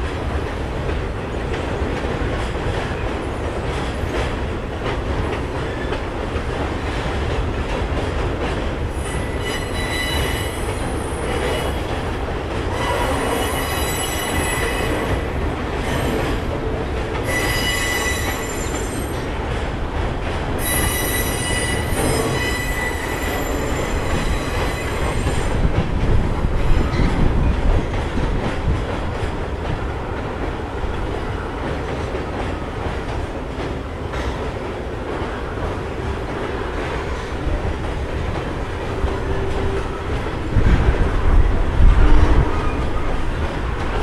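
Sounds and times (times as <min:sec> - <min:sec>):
rumble of wheels on track: 0:00.0 - 0:44.0
train wheels squealing on rails: 0:08.9 - 0:12.0, 0:12.6 - 0:19.4, 0:20.5 - 0:27.9, 0:38.4 - 0:43.5.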